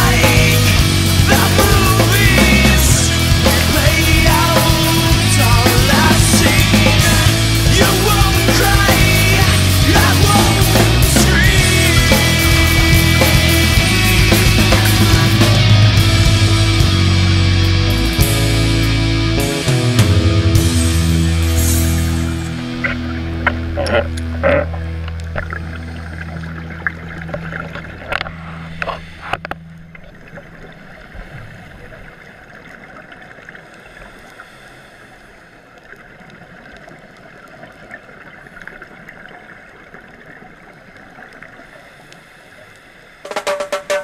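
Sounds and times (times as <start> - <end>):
low-pitched music: 0.0 - 31.0, 43.3 - 44.0
muffled underwater hiss: 30.3 - 43.3.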